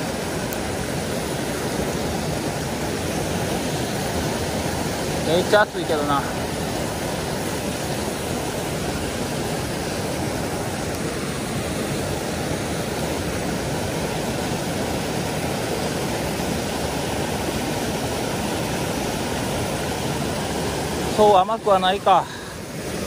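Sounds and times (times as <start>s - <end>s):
stream rushing over rocks: 0.0s - 23.0s.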